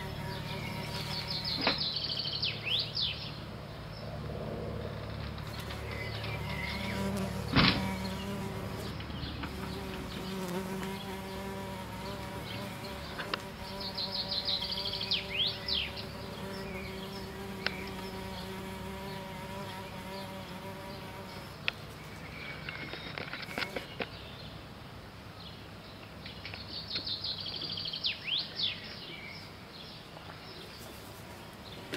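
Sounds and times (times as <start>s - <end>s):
insect-like buzzing hum: 0.0s - 2.0s, 5.4s - 22.2s.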